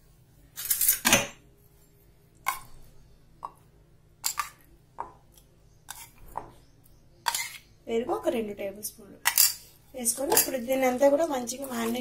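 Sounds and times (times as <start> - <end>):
metal spoon scraping steel bowl: 7.3 - 7.7, 9.3 - 12.0.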